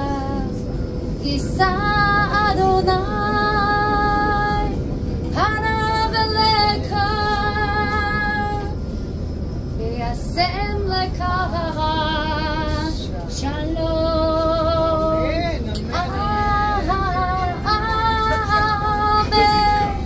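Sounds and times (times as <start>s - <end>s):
tram rumble: 0.0s - 20.0s
woman singing: 15.9s - 20.0s.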